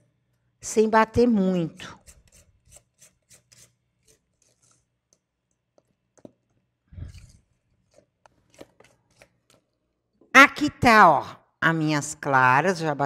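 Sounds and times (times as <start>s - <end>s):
spatula scraping mixing bowl: 1.8s - 4.9s.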